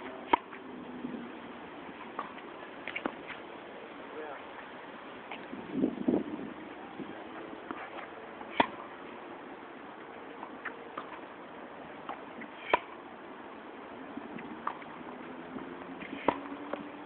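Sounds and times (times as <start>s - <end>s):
tennis racket striking ball: 0.2s - 0.6s, 7.6s - 8.9s, 12.0s - 13.0s, 15.9s - 16.9s.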